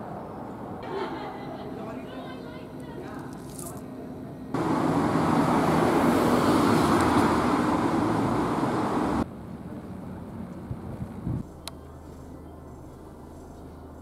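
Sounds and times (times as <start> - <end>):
loud rushing noise: 4.6 - 9.2.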